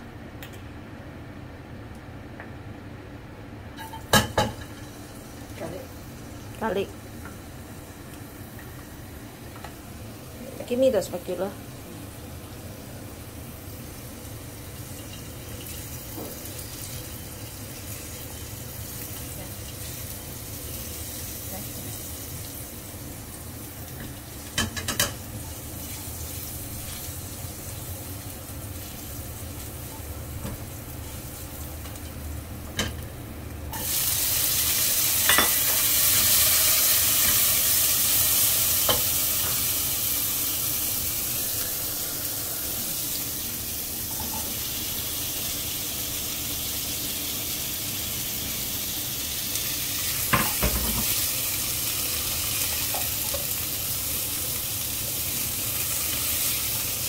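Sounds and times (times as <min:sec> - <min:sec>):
food sizzling in oil: 0:03.7 - 0:57.0.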